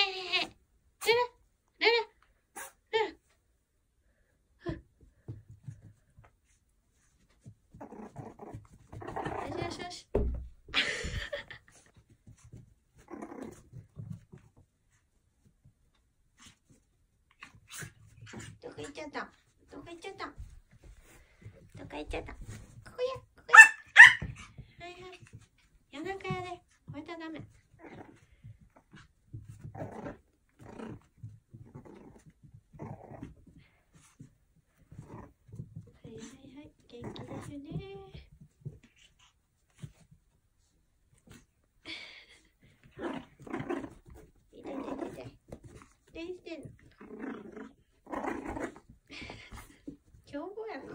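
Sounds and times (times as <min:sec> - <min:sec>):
puppy play growling: 0:05.6 - 0:22.9, 0:27.4 - 0:50.9
puppy growling playfully: 0:07.7 - 0:10.0, 0:12.9 - 0:14.4, 0:27.7 - 0:33.8, 0:34.8 - 0:36.0, 0:36.8 - 0:37.7, 0:42.5 - 0:46.0, 0:46.6 - 0:50.0.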